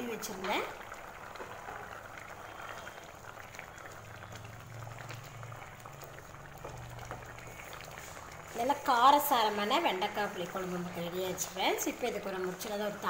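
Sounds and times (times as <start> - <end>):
curry bubbling and popping: 0.0 - 13.0.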